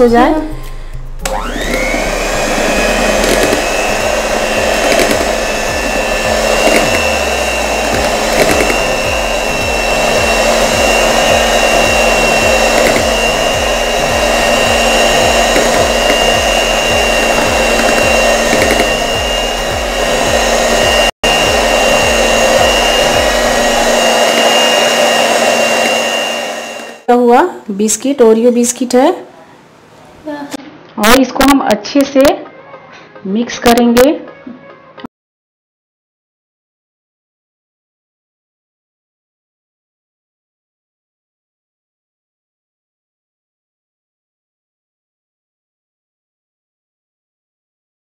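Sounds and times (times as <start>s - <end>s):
electric hand mixer whirring: 1.2s - 27.4s.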